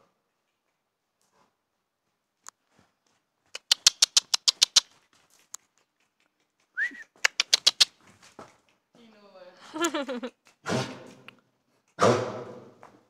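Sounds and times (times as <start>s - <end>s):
mouth kissing clicks: 3.5s - 5.0s, 6.8s - 8.0s.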